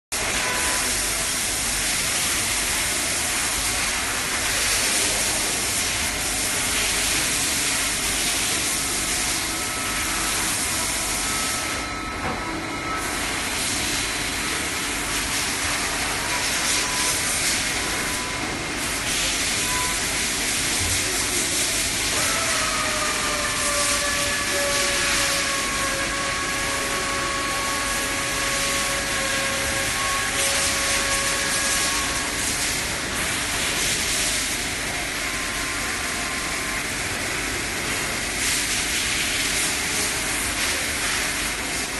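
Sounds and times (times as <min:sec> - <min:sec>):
machining centre hissing and whining: 0:00.2 - 0:41.9.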